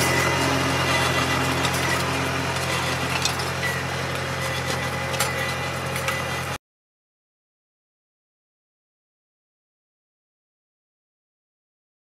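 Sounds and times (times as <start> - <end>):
tractor engine running: 0.0 - 6.6.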